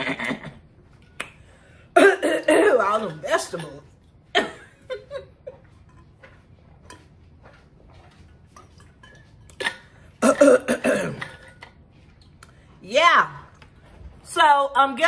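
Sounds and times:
person swallowing: 9.5 - 11.7.

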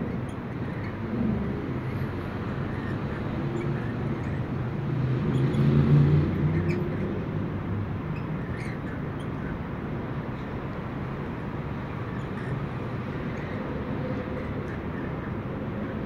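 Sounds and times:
street traffic rumbling: 0.0 - 16.0
vehicle passing: 1.1 - 8.1.

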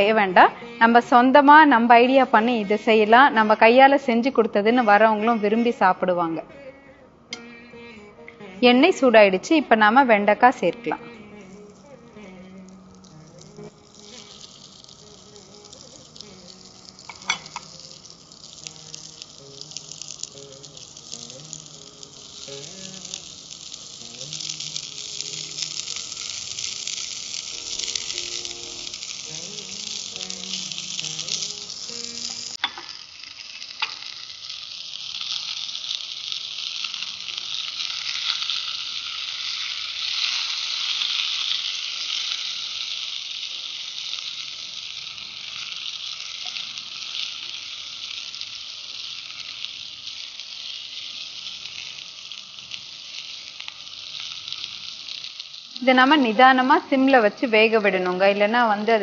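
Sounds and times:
okra sizzling in oil: 0.0 - 6.7, 7.3 - 59.0.

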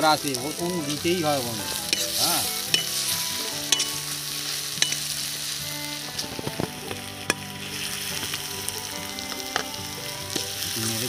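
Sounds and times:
garlic and onions sizzling in oil: 0.0 - 11.0
utensil clicking against pan: 1.8 - 4.1, 4.8 - 5.1, 9.3 - 10.5.

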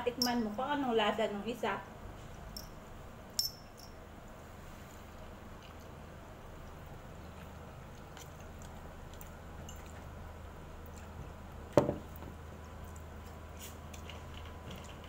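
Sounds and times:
low steady hum: 0.0 - 15.0
quiet eating sounds: 4.5 - 15.0.

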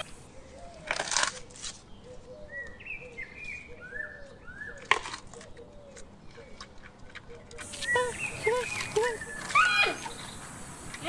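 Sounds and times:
crunching bamboo: 0.0 - 1.9, 4.8 - 11.0
birds chirping faintly: 0.0 - 11.0.

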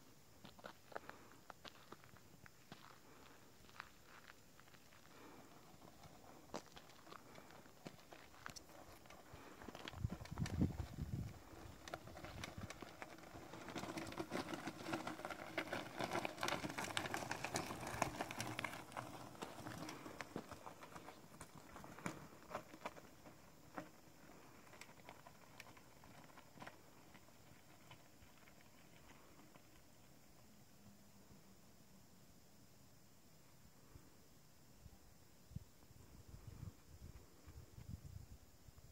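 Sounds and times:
bike tyres crunching over gravel: 0.4 - 30.4.

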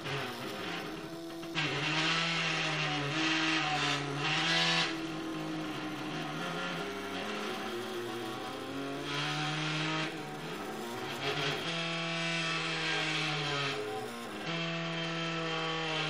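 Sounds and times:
stepper motors whining: 0.0 - 16.0.

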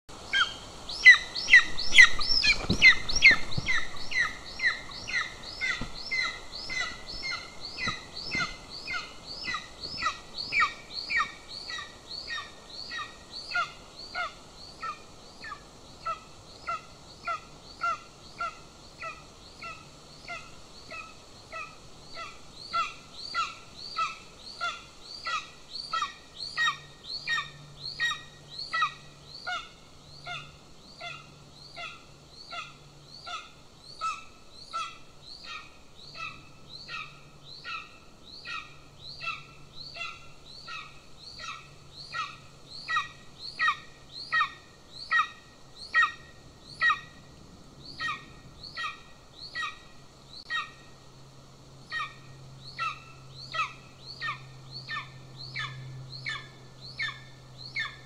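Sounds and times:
eagle yelping calls: 0.3 - 47.2, 47.9 - 49.9, 50.5 - 50.8, 51.9 - 58.0
wings flapping and rustling: 1.5 - 11.4.

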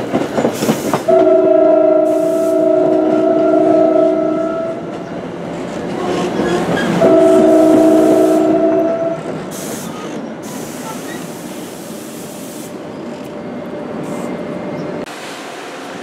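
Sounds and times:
train wheels rumbling: 0.0 - 16.0
hiss: 0.4 - 1.1, 9.5 - 12.8
train horn: 1.1 - 4.9, 6.0 - 9.3.

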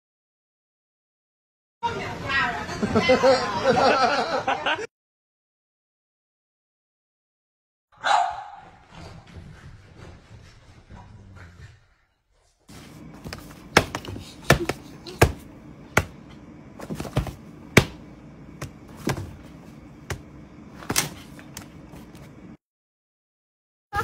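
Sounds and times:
steady low hum: 12.7 - 22.6.

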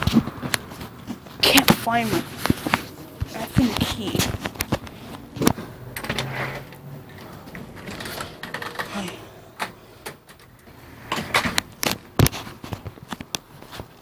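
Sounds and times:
door opening: 2.3 - 12.2.

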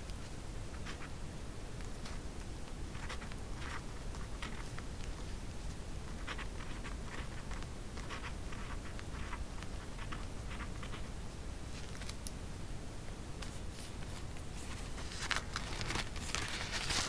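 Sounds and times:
pencil writing on paper: 6.1 - 11.1.

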